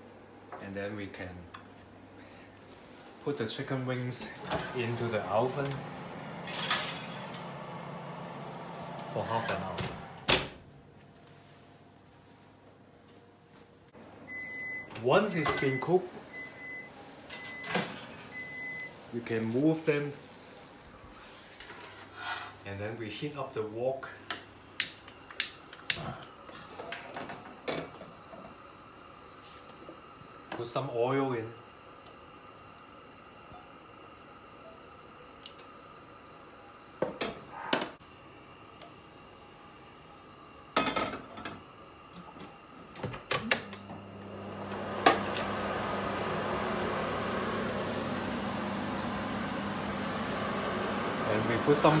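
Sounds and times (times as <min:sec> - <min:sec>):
gas hob igniter clicking: 0:24.3 - 0:26.0.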